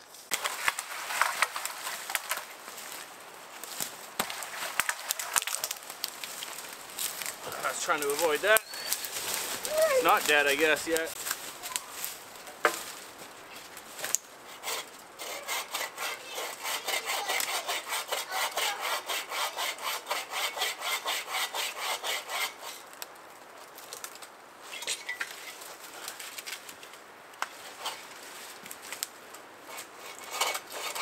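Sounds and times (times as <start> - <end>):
hand saw cutting tree trunk: 14.5 - 22.9, 29.6 - 31.0.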